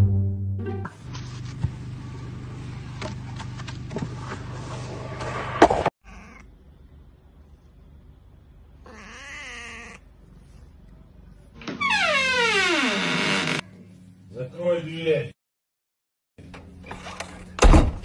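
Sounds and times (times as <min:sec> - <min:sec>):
cat meowing: 0:06.0 - 0:06.5, 0:08.8 - 0:10.1.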